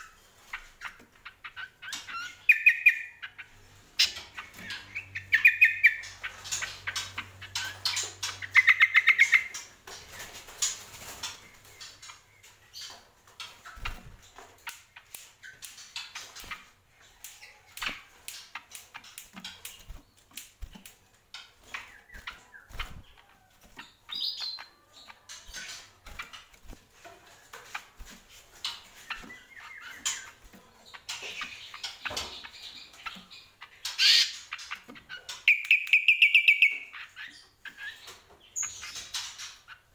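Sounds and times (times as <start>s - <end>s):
bird chirps: 0.0s - 26.8s, 27.6s - 39.9s
bird singing trills: 0.8s - 10.2s, 21.6s - 26.6s, 28.6s - 39.9s
clicks in bird cage: 13.4s - 22.4s
wing flutters: 15.6s - 24.3s.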